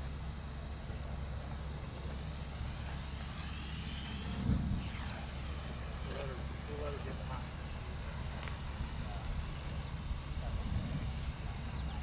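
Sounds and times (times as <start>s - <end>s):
steady low rumble: 0.0s - 12.0s
low thump of ignition: 2.8s - 12.0s.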